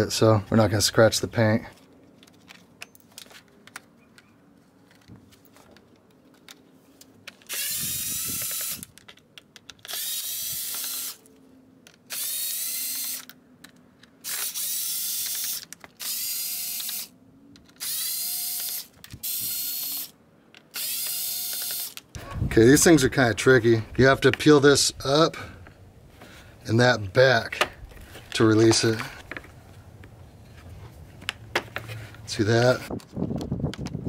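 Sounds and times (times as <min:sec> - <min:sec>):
cordless driver motor whine: 0:07.5 - 0:08.9, 0:09.9 - 0:11.2, 0:14.3 - 0:17.1, 0:17.8 - 0:20.1, 0:20.8 - 0:22.0.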